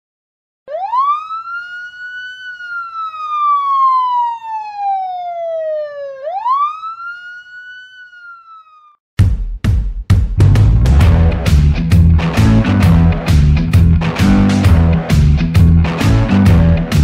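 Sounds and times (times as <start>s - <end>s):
siren wailing: 0.7s - 9.0s.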